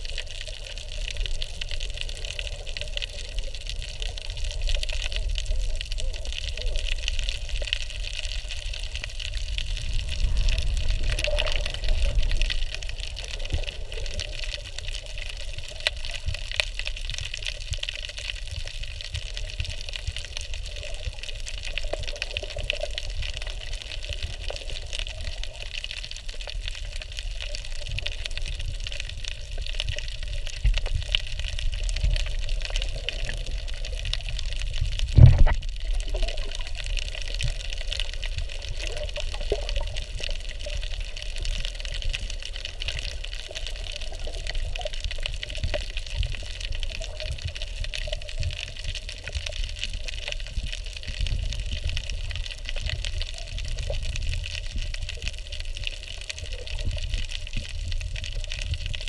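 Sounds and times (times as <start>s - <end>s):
faint crackling clicks: 0.0s - 59.0s
underwater rush of seawater: 0.0s - 59.0s
loud thump: 35.2s - 35.6s.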